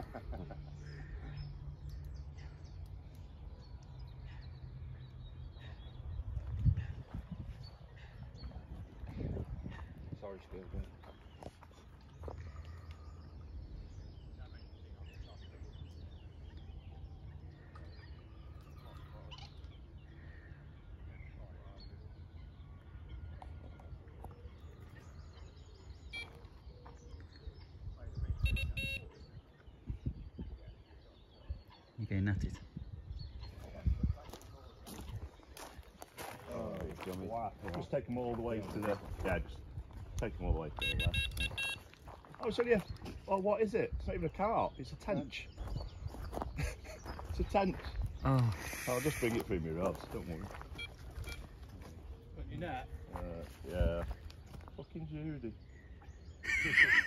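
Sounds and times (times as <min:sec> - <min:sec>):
birds chirping faintly: 0:00.0 - 0:57.0
wind rumbling on microphone: 0:05.9 - 0:11.6, 0:27.0 - 0:37.8, 0:38.6 - 0:44.8, 0:45.5 - 0:54.8.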